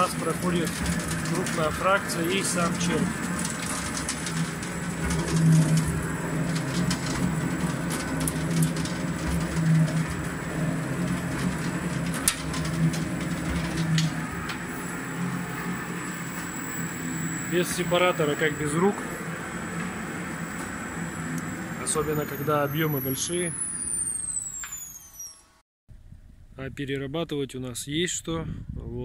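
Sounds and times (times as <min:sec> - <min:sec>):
compost tumbling in drum: 0:00.0 - 0:20.8
gear motor humming: 0:00.0 - 0:25.6.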